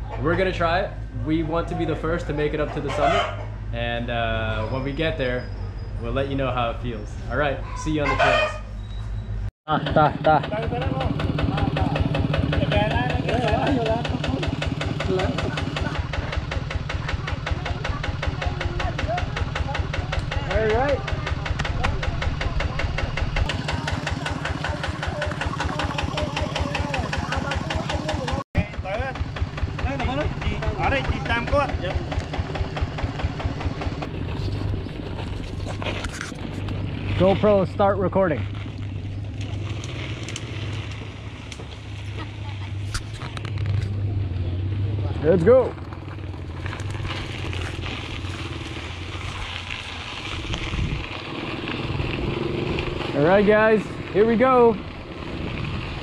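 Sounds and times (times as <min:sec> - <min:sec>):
diesel tractor engine idling: 0:09.7 - 0:35.8
bike tyres crunching on sandy dirt: 0:23.3 - 0:56.0.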